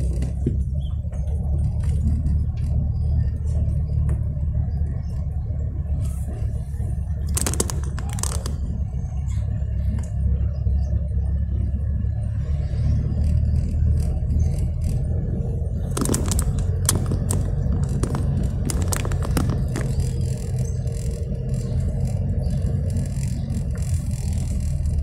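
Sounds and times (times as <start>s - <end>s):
car engine and tyres rumble: 0.0s - 25.0s
scraping rattles: 7.1s - 9.6s, 13.1s - 25.0s.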